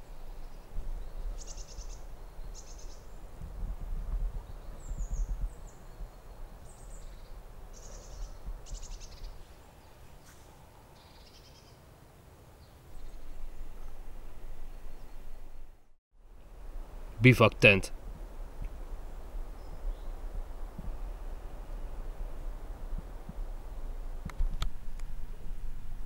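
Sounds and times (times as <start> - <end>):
songbirds chirping and trilling: 0.0 - 3.4, 4.1 - 11.9, 12.5 - 15.8.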